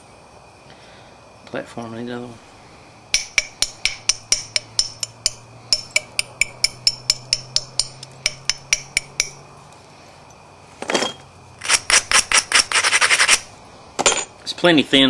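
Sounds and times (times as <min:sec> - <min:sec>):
stone-on-stone clicks: 0:03.2 - 0:09.4.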